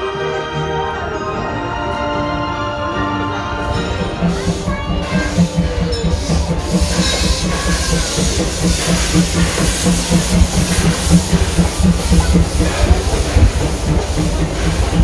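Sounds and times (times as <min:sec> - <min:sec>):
train wheels rumbling and clattering: 0:03.4 - 0:15.0
steam hissing: 0:03.6 - 0:15.0.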